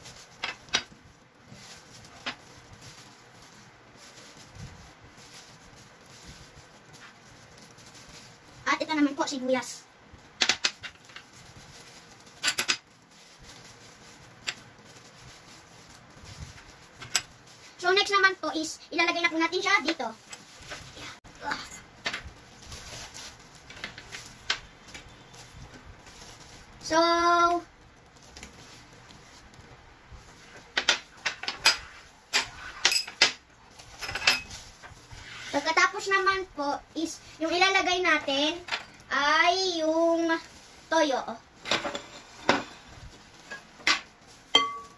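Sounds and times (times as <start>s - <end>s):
bowls and utensil clinking: 34.0s - 34.6s, 44.5s - 44.9s.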